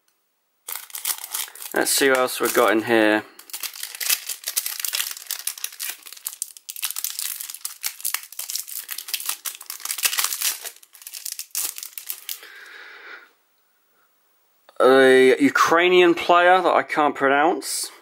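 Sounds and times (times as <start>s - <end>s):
foil pack crinkling: 0.6s - 12.6s.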